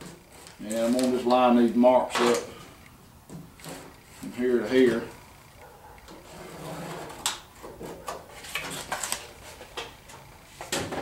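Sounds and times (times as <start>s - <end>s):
cardboard scraping on metal: 0.0s - 1.4s, 3.4s - 5.2s, 6.1s - 9.9s.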